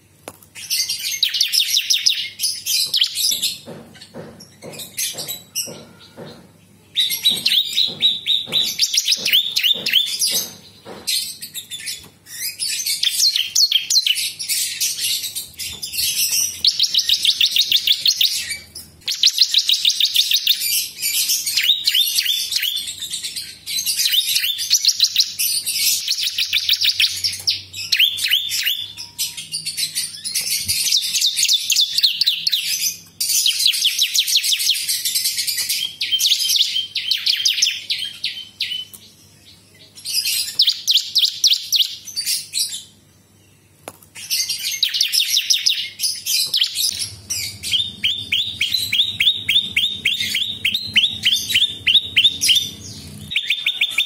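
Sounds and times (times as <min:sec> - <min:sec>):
bird singing fast trills: 0:07.0 - 0:38.9, 0:44.2 - 0:54.0.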